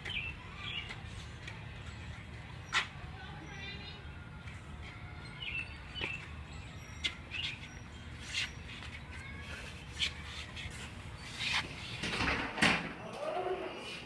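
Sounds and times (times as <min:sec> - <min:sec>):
small birds chirping: 0:00.0 - 0:01.2, 0:04.8 - 0:12.0.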